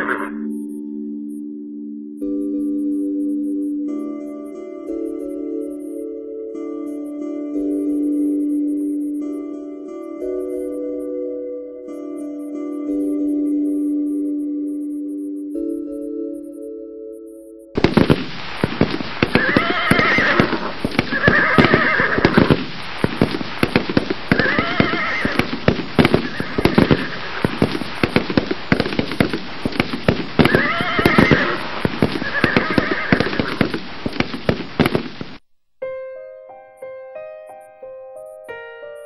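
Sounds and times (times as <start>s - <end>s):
horses whinnying: 0.0s - 0.4s, 18.8s - 35.1s
clatter of sharp cracks: 17.8s - 35.4s.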